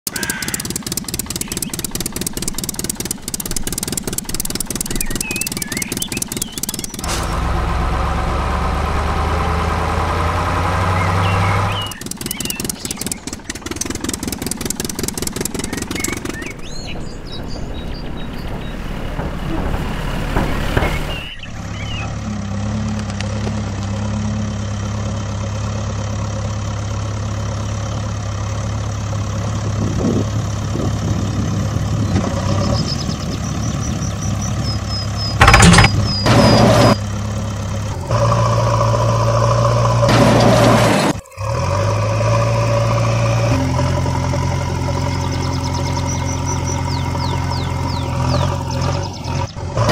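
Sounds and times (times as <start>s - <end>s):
engine clattering: 0.0s - 49.9s
engine droning: 0.0s - 49.9s
low hum: 0.1s - 27.2s.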